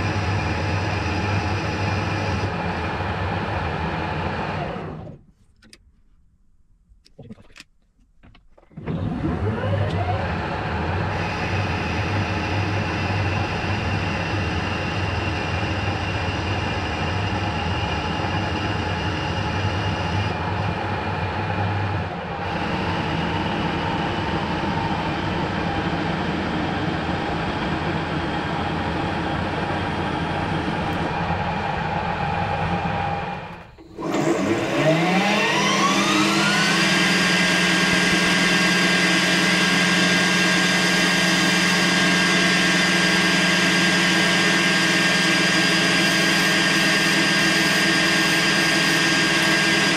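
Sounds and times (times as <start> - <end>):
lathe spindle whining: 8.8 - 49.9
metal lathe running: 11.0 - 49.9.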